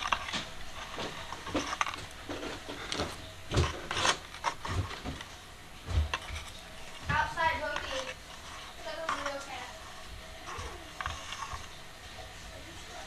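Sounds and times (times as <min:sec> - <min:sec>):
plastic clicks and scratches: 0:00.0 - 0:05.3, 0:06.1 - 0:11.8
fingers scraping hair from brush: 0:06.3 - 0:11.8.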